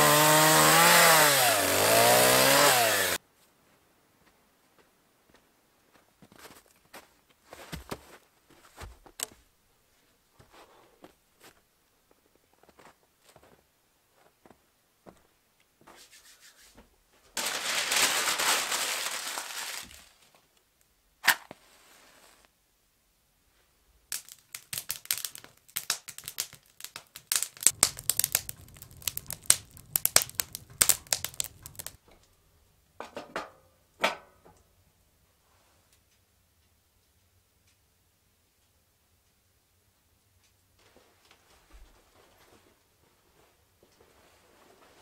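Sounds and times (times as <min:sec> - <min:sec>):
paper tearing and crumpling: 0:17.4 - 0:20.3, 0:24.1 - 0:32.0
kindling crackling and popping: 0:24.1 - 0:32.0
low fire rumble: 0:24.8 - 0:32.0.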